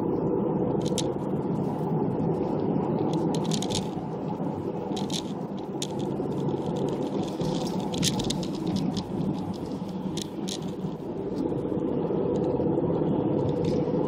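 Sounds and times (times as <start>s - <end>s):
road and engine noise in cabin: 0.0s - 14.0s
light clicks and rattles: 3.1s - 4.0s, 4.9s - 11.0s.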